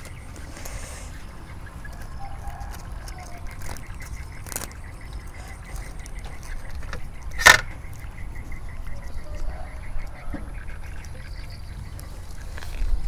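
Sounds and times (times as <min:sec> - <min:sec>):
crispy pancake crackling: 0:01.9 - 0:07.0.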